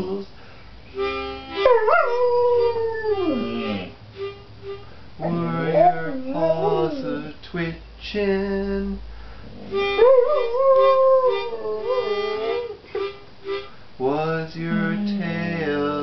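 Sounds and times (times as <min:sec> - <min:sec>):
dog howling: 0:01.7 - 0:03.9, 0:05.2 - 0:07.3, 0:09.6 - 0:12.7
held instrumental tone: 0:14.7 - 0:16.0.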